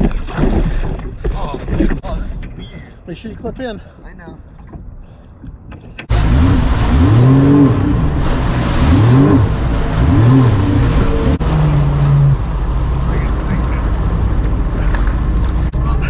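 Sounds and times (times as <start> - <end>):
rushing wind and water: 0.0 - 2.7, 4.2 - 16.0
jet ski engine revving: 6.1 - 15.6.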